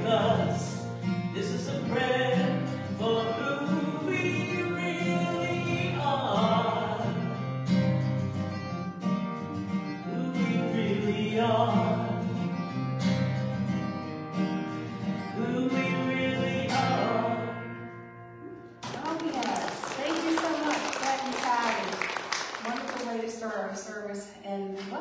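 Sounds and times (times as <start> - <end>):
strummed acoustic guitar: 0.0 - 19.1.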